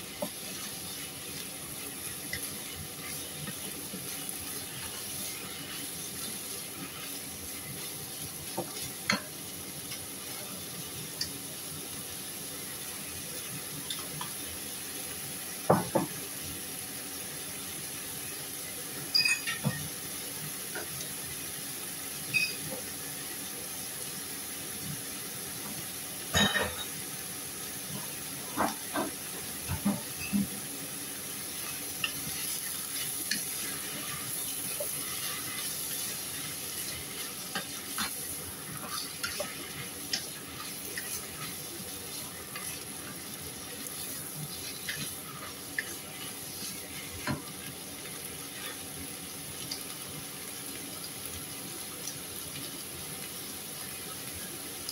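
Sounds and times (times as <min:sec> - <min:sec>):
meat sizzling in a pot: 0:00.0 - 0:54.9
spatula scraping a pan: 0:31.6 - 0:43.2.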